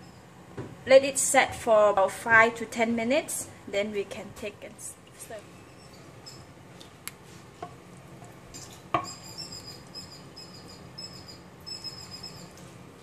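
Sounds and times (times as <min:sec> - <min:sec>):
faint high squeaking: 0:05.6 - 0:06.5, 0:08.6 - 0:12.6.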